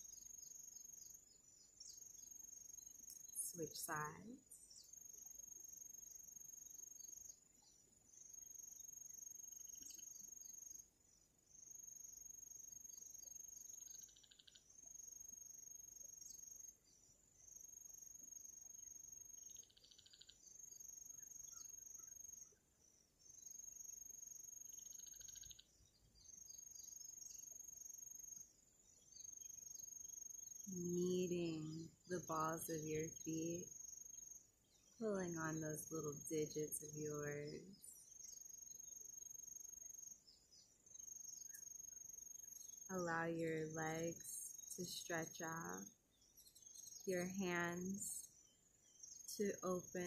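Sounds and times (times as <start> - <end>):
crickets trilling: 23.3 - 28.5.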